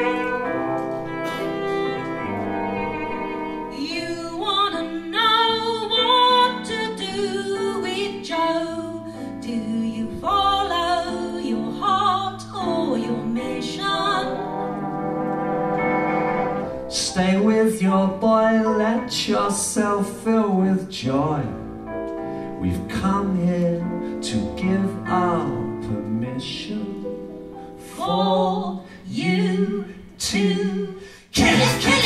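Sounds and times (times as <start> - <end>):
high melody with vibrato: 12.6 - 17.0.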